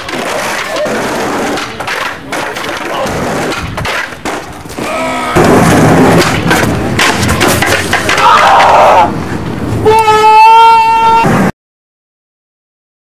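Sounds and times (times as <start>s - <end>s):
skateboard clacking: 0.0s - 4.8s, 6.2s - 8.8s
skateboard rolling on concrete: 0.0s - 9.9s
people shouting: 4.8s - 5.5s, 8.1s - 9.2s, 9.8s - 11.3s.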